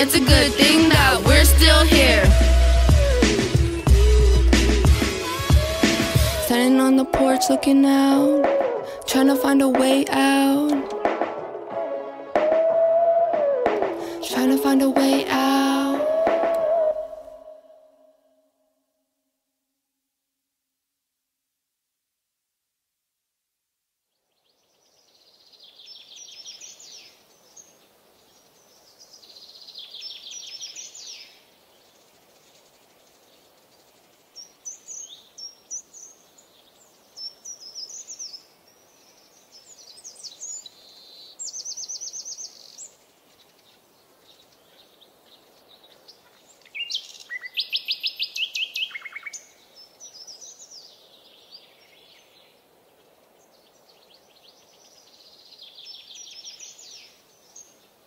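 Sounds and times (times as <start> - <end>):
faint steady background hiss: 17.1 - 58.0
birds singing: 24.3 - 58.0.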